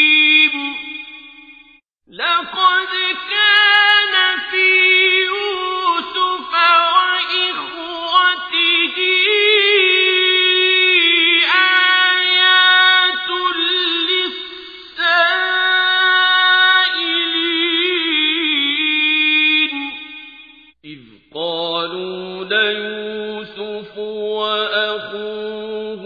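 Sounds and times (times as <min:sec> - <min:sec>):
person chanting a recitation: 0:00.0 - 0:00.9, 0:02.1 - 0:20.0, 0:20.9 - 0:26.0.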